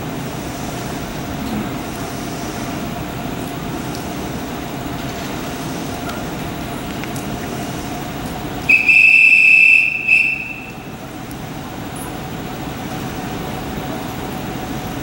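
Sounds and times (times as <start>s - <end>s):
rumble of rail traffic: 0.0s - 15.0s
electric train horn: 8.7s - 11.0s.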